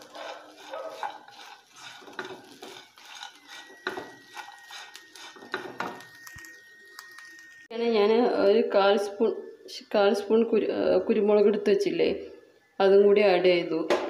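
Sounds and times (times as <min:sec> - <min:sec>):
wooden spatula scraping pan: 0:00.0 - 0:06.2.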